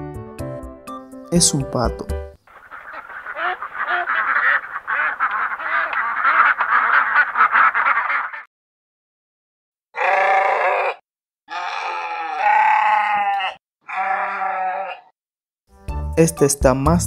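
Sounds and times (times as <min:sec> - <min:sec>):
duck quacking rapidly: 0:02.5 - 0:08.5
sheep bleating: 0:11.5 - 0:15.0.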